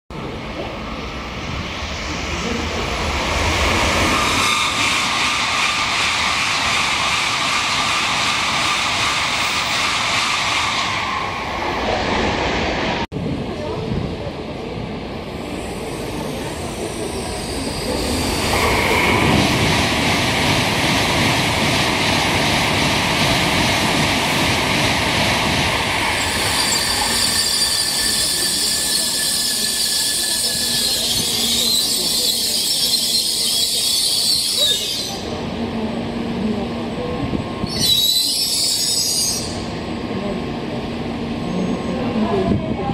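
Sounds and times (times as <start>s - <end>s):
train wheels rushing: 0.6s - 12.8s, 15.6s - 35.2s
high squeal of train brakes: 15.6s - 19.2s, 26.2s - 35.3s, 37.6s - 39.7s.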